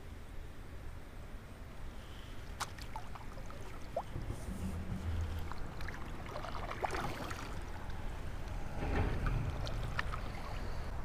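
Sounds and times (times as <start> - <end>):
low steady rumble: 0.0 - 11.0
paddle splashing in water: 2.4 - 8.2, 9.5 - 10.9.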